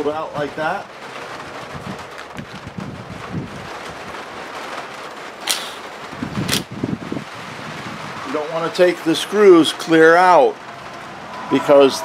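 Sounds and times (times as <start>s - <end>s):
steady hiss: 5.4s - 6.1s.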